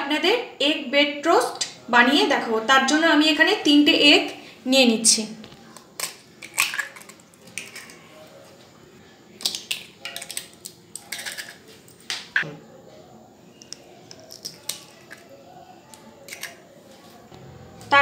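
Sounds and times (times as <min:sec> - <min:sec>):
eggs cracking on bowl rim: 0:05.8 - 0:08.0, 0:09.4 - 0:11.6, 0:13.6 - 0:15.3, 0:15.9 - 0:16.6.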